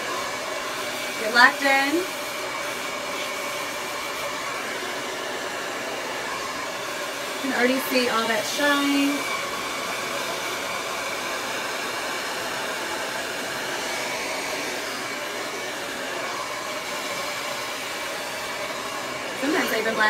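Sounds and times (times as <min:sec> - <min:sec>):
hair dryer running: 0:00.0 - 0:20.0.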